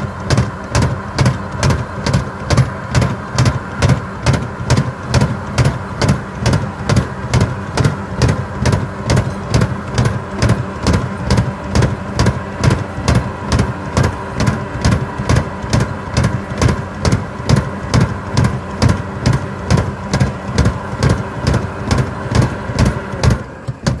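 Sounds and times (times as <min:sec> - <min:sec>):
rotary mulcher churning ground: 0:00.0 - 0:24.0
tractor engine running: 0:00.0 - 0:24.0.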